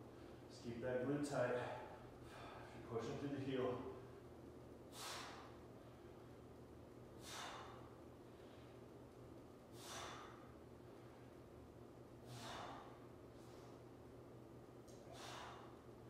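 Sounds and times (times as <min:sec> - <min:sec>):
faint low hum: 0:00.0 - 0:16.0
man breathing hard: 0:01.6 - 0:02.8, 0:04.8 - 0:06.5, 0:07.1 - 0:09.0, 0:09.6 - 0:14.0, 0:14.9 - 0:16.0.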